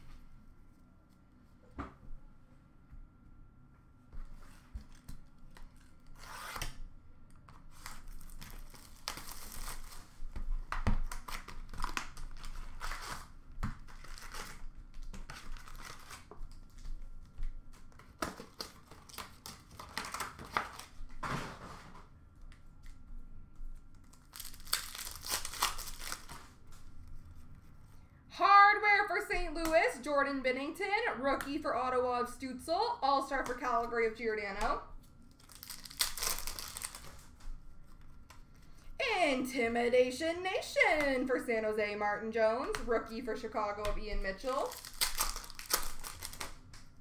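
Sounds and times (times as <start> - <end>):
foil wrapper tearing and crinkling: 7.6 - 10.4, 11.0 - 16.9, 17.9 - 21.0, 24.0 - 26.8, 35.3 - 37.4, 44.4 - 47.0.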